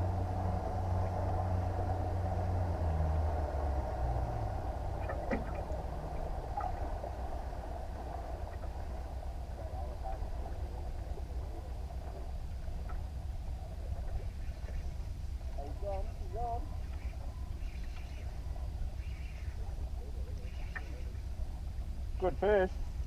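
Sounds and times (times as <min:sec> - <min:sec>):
boat motor humming: 0:00.0 - 0:23.0.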